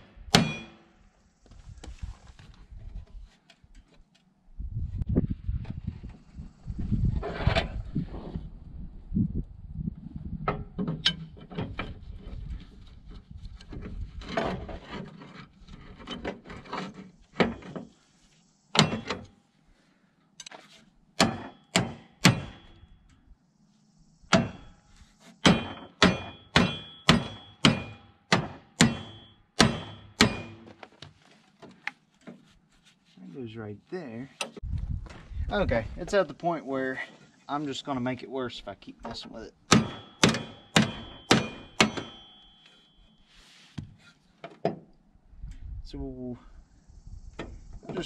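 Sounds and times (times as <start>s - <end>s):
sledgehammer striking ringing steel: 0.3s - 0.9s, 18.8s - 19.3s, 21.2s - 23.0s, 24.3s - 24.8s, 25.4s - 30.7s, 39.7s - 43.0s
wrench clanking and scraping metal: 13.5s - 17.9s, 18.8s - 19.3s, 39.7s - 42.9s.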